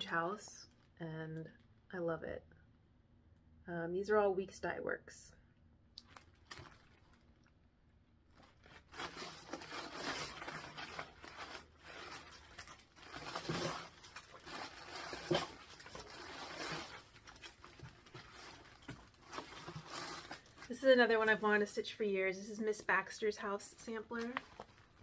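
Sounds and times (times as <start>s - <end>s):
plastic sleeves rustling: 6.0s - 25.0s.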